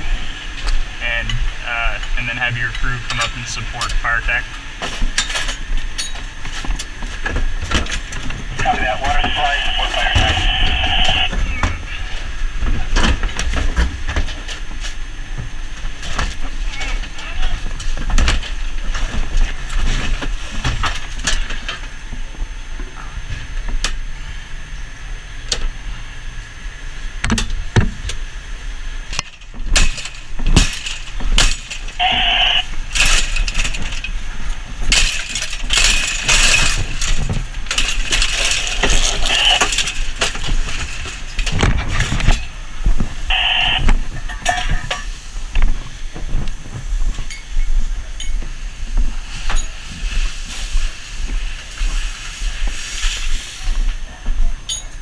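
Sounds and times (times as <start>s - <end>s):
short electronic tones: 43.3s - 43.9s.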